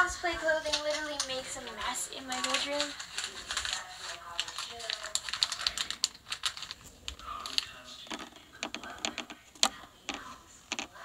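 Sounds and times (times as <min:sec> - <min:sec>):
typing on phone keyboard: 0:04.4 - 0:06.8, 0:07.4 - 0:10.9.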